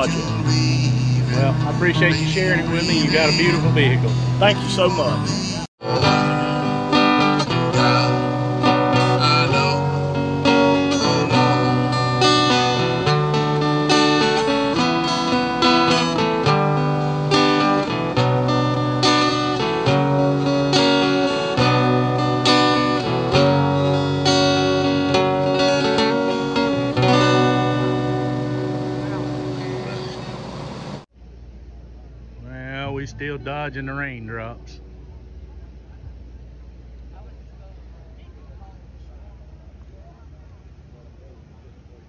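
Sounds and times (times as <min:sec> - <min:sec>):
acoustic guitar strumming chords: 0:00.0 - 0:31.0.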